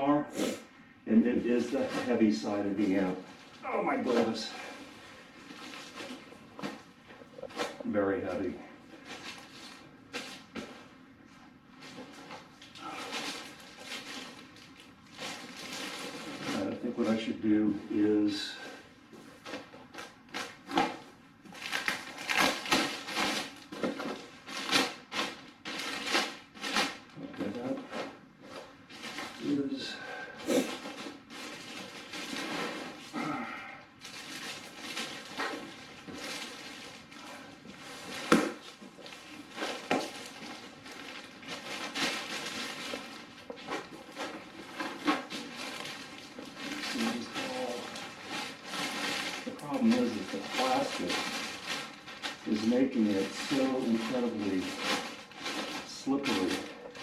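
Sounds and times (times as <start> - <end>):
plastic bag crinkling: 1.4 - 11.0, 11.7 - 18.6, 19.3 - 57.0.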